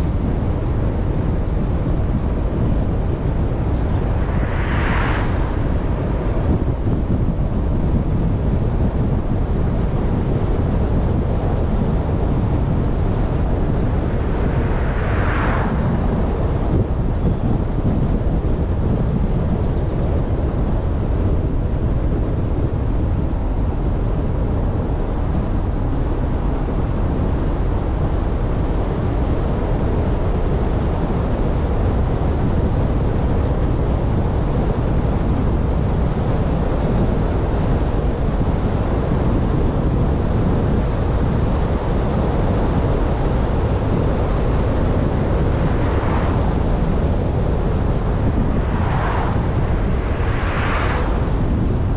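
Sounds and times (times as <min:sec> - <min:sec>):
vehicle rumble on road: 0:00.0 - 0:30.8, 0:31.5 - 0:51.9
wind on microphone: 0:00.0 - 0:51.9.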